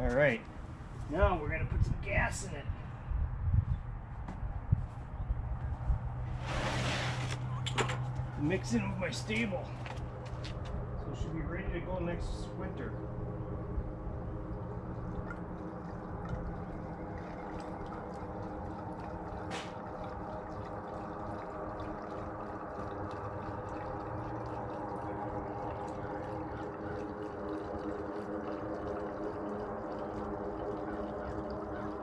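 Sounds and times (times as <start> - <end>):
fuel pouring into tank: 6.2 - 10.6, 13.6 - 32.0.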